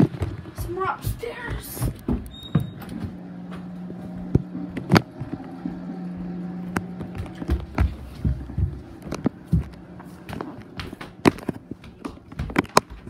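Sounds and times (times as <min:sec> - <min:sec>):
low hum: 0:00.0 - 0:12.0
footsteps on tiled floor: 0:00.0 - 0:13.0.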